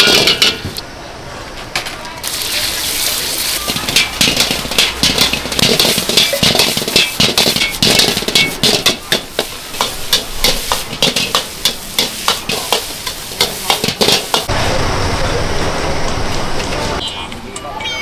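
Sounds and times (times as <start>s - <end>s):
food sizzling: 2.2s - 14.6s
metal spatula scraping a wok: 3.6s - 14.4s.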